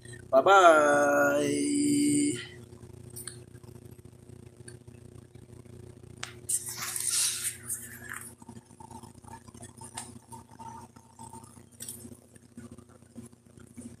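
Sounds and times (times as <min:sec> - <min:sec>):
steady low hum: 0:00.0 - 0:14.0
fingers rubbing on microphone: 0:06.5 - 0:09.0.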